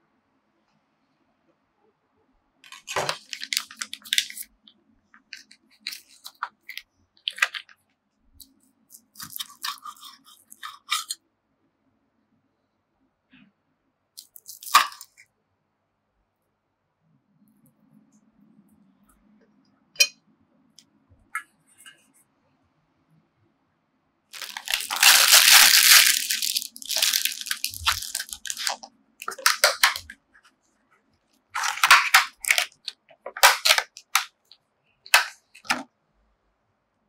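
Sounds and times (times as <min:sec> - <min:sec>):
plastic packaging crinkling: 0:02.6 - 0:04.5, 0:05.3 - 0:07.8, 0:08.9 - 0:11.2, 0:14.2 - 0:15.2, 0:24.4 - 0:30.2, 0:31.6 - 0:35.8.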